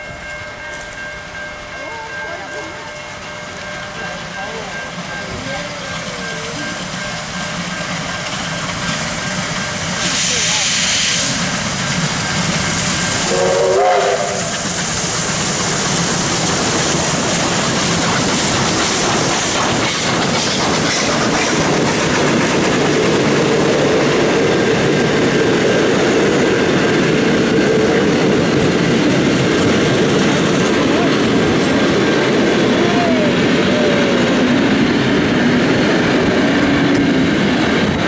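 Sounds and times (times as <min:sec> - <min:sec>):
train wheels clicking over rail joints: 0:02.5 - 0:38.0
steam whistle blast: 0:13.2 - 0:14.7.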